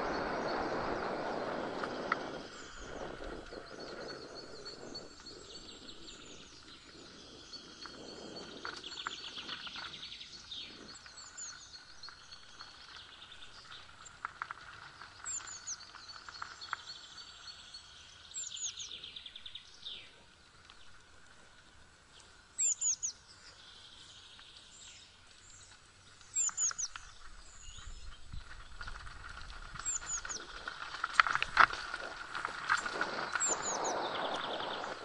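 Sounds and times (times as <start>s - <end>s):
bike tyres rolling on leaves: 0.0s - 35.0s
songbirds singing: 0.0s - 35.0s.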